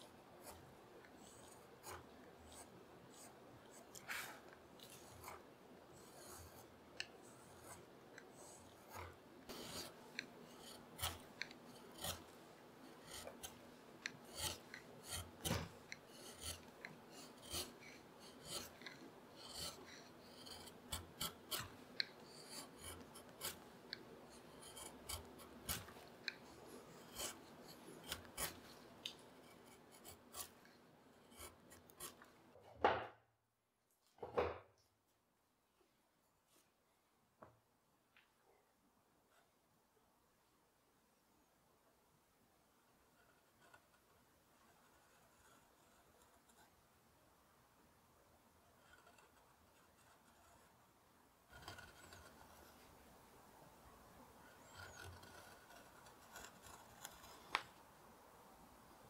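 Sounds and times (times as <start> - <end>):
carving gouge scraping wood: 0.0 - 32.4, 43.2 - 46.7, 48.7 - 50.8, 51.5 - 53.0, 54.4 - 57.8.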